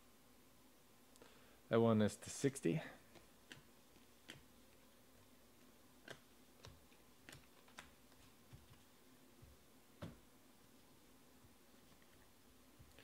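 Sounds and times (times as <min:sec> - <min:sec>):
trading cards clicking and snapping: 0:03.1 - 0:04.5, 0:06.0 - 0:08.8.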